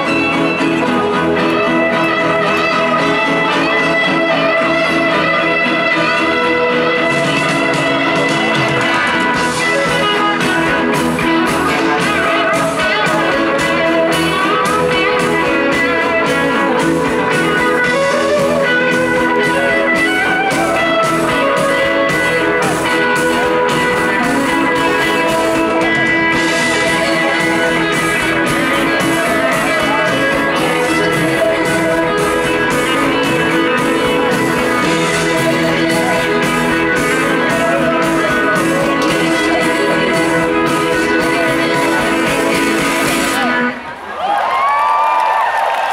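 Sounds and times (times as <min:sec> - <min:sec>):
drums playing steady beat: 0:00.0 - 0:43.6
bass guitar: 0:00.0 - 0:44.7
electric guitar: 0:00.0 - 0:45.9.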